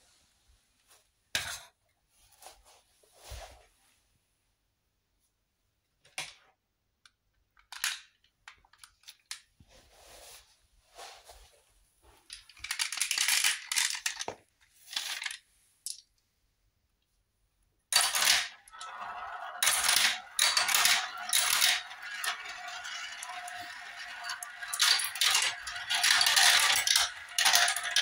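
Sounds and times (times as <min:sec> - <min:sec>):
marbles rolling through plastic track: 0:12.6 - 0:15.4, 0:17.9 - 0:28.0
marbles clicking and rattling: 0:18.0 - 0:28.0.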